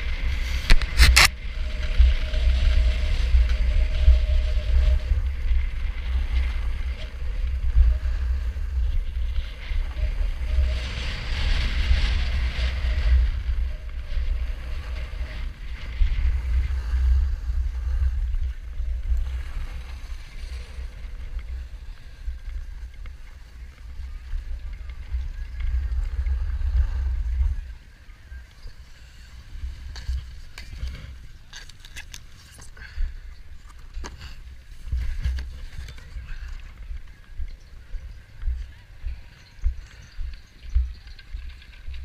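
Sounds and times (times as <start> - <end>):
snowboard sliding over snow: 0.0 - 31.5
wind rumbling on microphone: 0.0 - 42.0
sharp clicks and scrapes: 0.2 - 4.1, 29.9 - 32.8.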